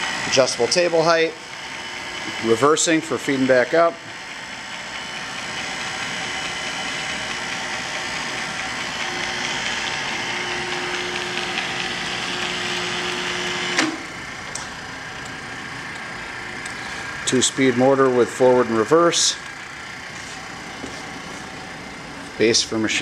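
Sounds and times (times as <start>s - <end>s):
drill press hum and gear whine: 0.0s - 23.0s
sharp mechanical clunk: 13.8s - 14.8s.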